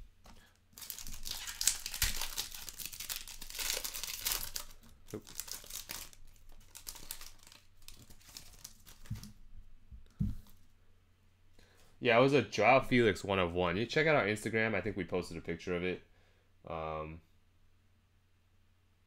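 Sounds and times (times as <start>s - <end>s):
foil wrapper crinkling: 0.3s - 9.4s.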